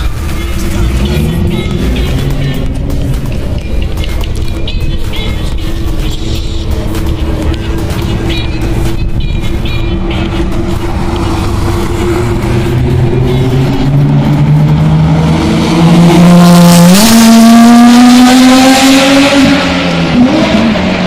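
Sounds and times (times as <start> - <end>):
race car engine accelerating: 10.2 - 21.0.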